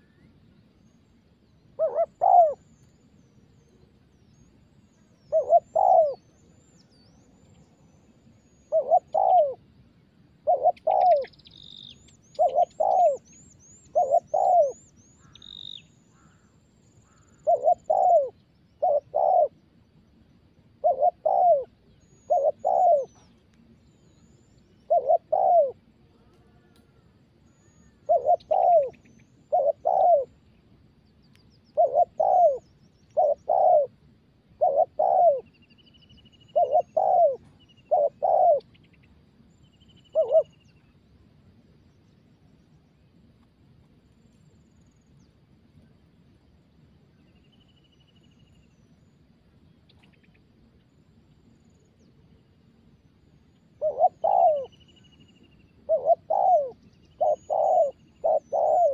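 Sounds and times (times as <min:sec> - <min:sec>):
dove cooing: 0:01.8 - 0:02.7, 0:05.2 - 0:06.4, 0:08.5 - 0:09.7, 0:10.4 - 0:11.3, 0:12.3 - 0:13.3, 0:13.9 - 0:15.4, 0:17.1 - 0:19.6, 0:20.8 - 0:23.4, 0:24.8 - 0:26.0, 0:27.5 - 0:30.4, 0:31.7 - 0:35.6, 0:36.4 - 0:38.7, 0:40.1 - 0:40.6, 0:53.8 - 0:54.8, 0:55.8 - 0:58.9
small birds chirping and trilling: 0:10.5 - 0:25.8, 0:53.8 - 0:58.9.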